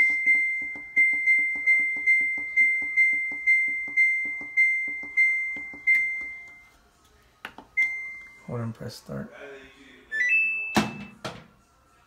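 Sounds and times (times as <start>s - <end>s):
washer control panel beeps: 0.0s - 6.6s, 7.8s - 8.5s, 10.1s - 11.2s.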